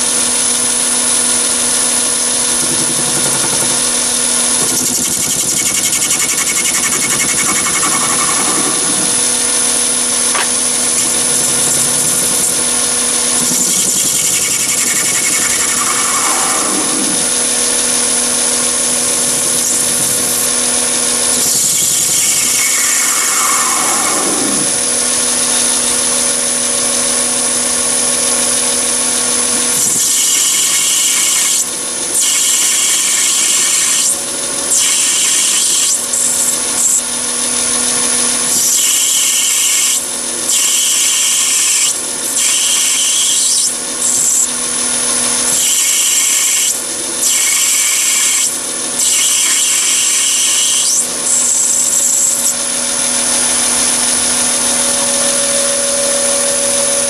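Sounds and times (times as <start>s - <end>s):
lathe motor hum: 0.0s - 32.1s
tool cutting brass hiss: 2.6s - 24.8s, 29.7s - 37.1s, 38.4s - 44.6s, 45.4s - 52.6s.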